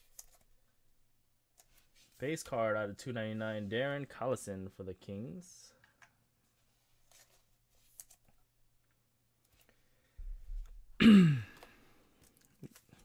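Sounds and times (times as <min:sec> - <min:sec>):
man coughing: 0:11.0 - 0:11.6.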